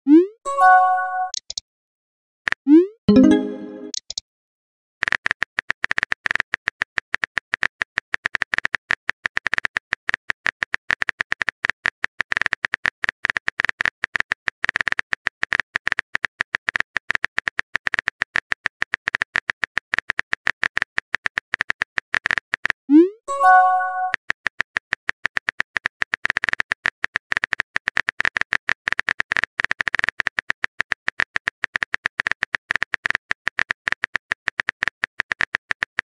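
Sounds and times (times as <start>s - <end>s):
rising pop with chime notes: 0.1s - 1.4s, 3.1s - 4.0s, 23.3s - 24.1s
keyboard typing clicks: 3.1s - 4.2s.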